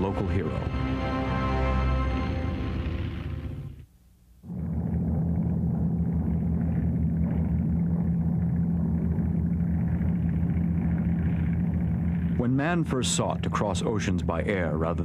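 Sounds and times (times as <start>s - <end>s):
propeller aircraft engines droning: 4.5s - 15.0s.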